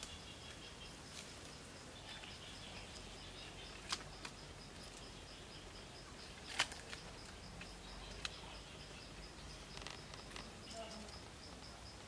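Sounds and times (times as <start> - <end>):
faint insect hiss: 0.0 - 12.0
insects calling: 0.0 - 12.0
sharp clicks of sticks and cord: 3.7 - 5.0, 6.4 - 8.4.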